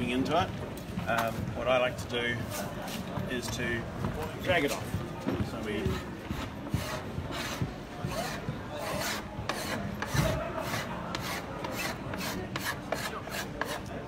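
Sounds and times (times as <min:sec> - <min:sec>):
scraper blade scraping wood: 0:05.8 - 0:14.0.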